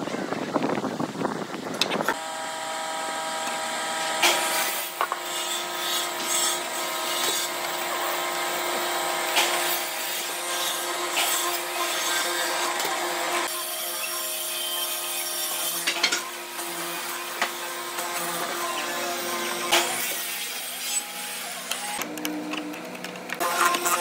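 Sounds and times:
motor running with steady whine: 0.3 - 9.6.

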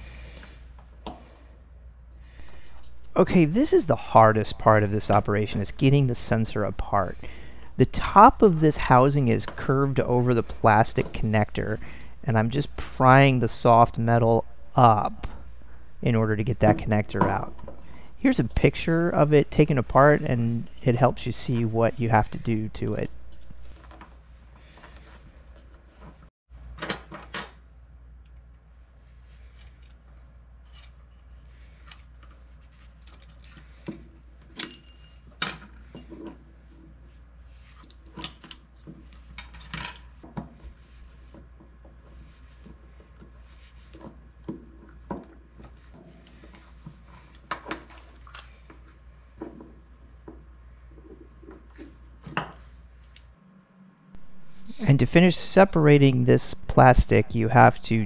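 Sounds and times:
low hum: 2.4 - 23.7, 53.4 - 58.0.

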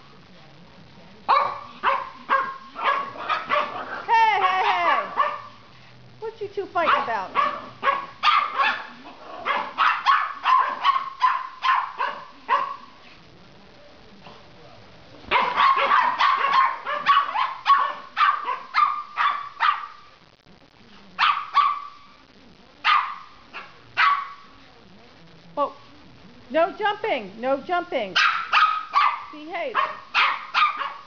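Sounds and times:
puppies barking: 1.3 - 5.6, 6.8 - 12.9, 15.3 - 20.0, 22.8 - 24.4, 28.2 - 31.0.

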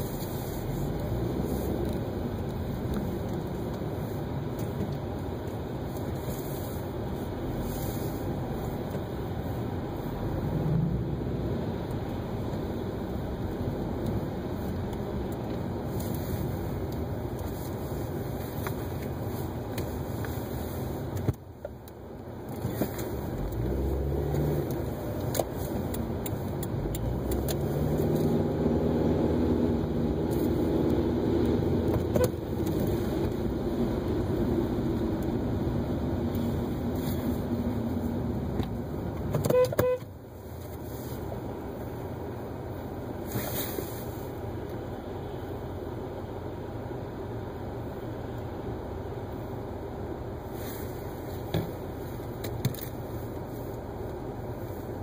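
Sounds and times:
engine hum: 0.0 - 55.0
car horn toots: 39.4 - 40.1
tyre hiss on wet road: 43.2 - 44.4, 50.4 - 52.3.

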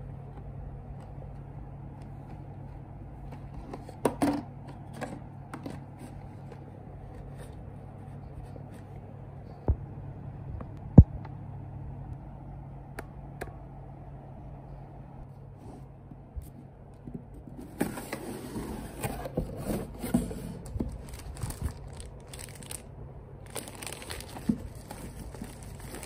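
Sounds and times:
steady low hum: 0.0 - 26.0
plastic packaging crinkling: 20.6 - 26.0.

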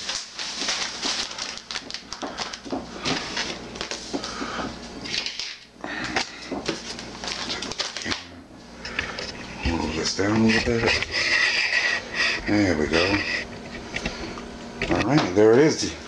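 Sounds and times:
plastic wrapping crinkling: 0.0 - 5.6, 6.2 - 8.3.

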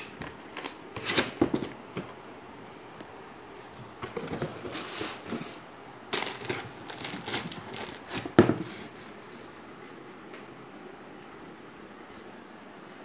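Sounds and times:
packing paper crinkling: 4.2 - 9.0.

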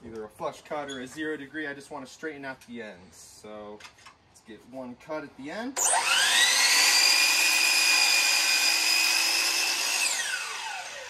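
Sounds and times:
miter saw cutting wood: 5.8 - 11.0
saw blade spinning down: 5.8 - 11.0.

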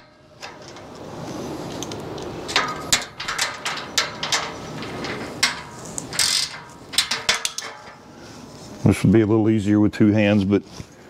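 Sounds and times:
wrench metallic clicks and clanks: 1.7 - 8.0.

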